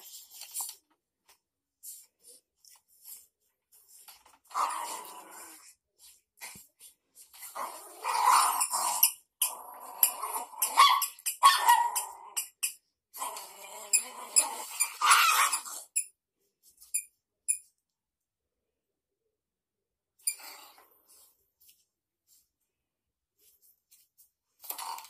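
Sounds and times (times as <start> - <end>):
puppies growling and yapping: 7.4 - 12.6, 13.2 - 16.0.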